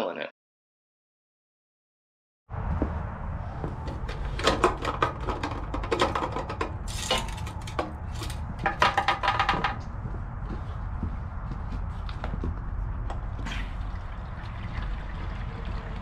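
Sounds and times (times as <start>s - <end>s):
low rumble: 2.5s - 16.0s
footsteps on concrete: 2.7s - 3.0s, 9.4s - 13.5s
fuel cap clicking and rattling: 3.9s - 9.7s.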